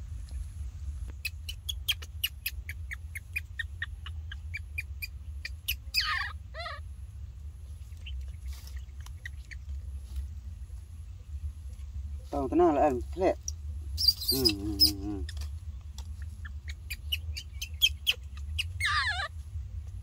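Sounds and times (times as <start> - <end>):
baby monkey squeaking: 1.1 - 6.8, 7.9 - 9.7, 13.4 - 19.4
baby monkey crying: 1.2 - 6.9, 14.0 - 15.5, 16.2 - 19.4.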